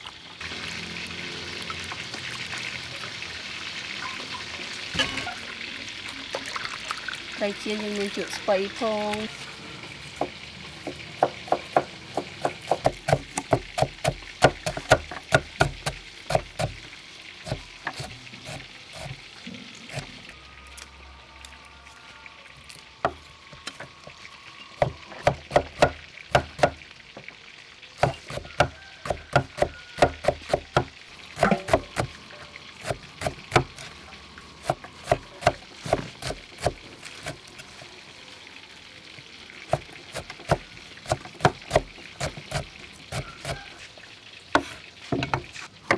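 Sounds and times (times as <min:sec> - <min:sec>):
knife chopping greens on wood: 0:10.2 - 0:16.8, 0:28.0 - 0:32.1, 0:39.7 - 0:43.7.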